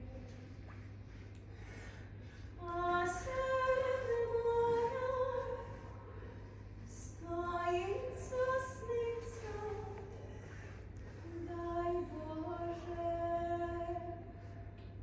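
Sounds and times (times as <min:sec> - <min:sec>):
woman singing unaccompanied: 0:02.6 - 0:06.1, 0:06.8 - 0:10.3, 0:11.2 - 0:14.4.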